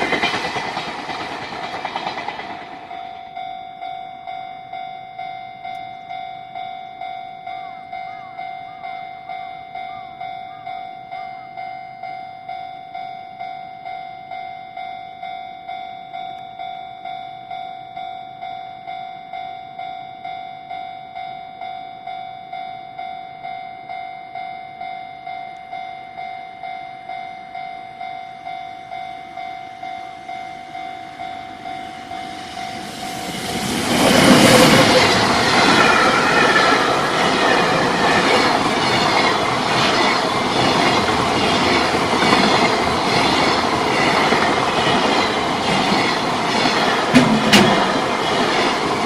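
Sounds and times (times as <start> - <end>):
train wheels clattering over rail joints: 0.0 - 3.1, 33.1 - 49.0
level-crossing warning bell: 0.0 - 49.0.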